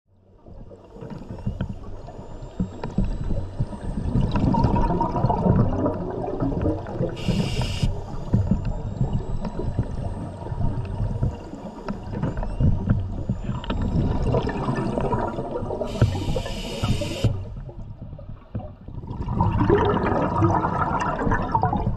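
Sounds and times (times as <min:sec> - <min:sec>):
air bubbling underwater: 0:04.1 - 0:07.7, 0:13.3 - 0:16.5, 0:18.9 - 0:21.9
regulator inhalation hiss: 0:07.2 - 0:08.0, 0:15.9 - 0:17.4.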